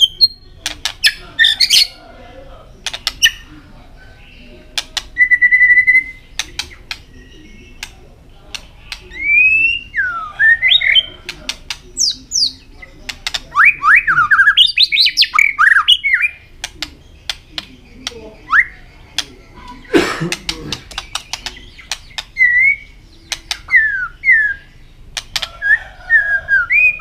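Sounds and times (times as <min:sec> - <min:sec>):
bird singing whistled phrases: 0:05.2 - 0:06.2, 0:09.2 - 0:11.1, 0:18.5 - 0:18.8, 0:22.4 - 0:22.9, 0:23.7 - 0:24.7.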